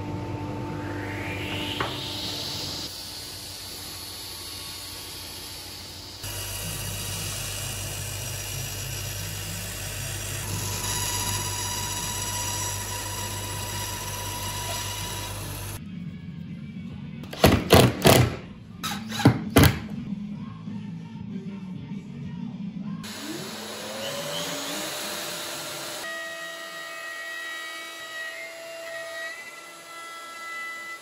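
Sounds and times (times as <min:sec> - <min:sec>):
woodworking power tool running: 0:00.0 - 0:15.8, 0:23.0 - 0:31.0.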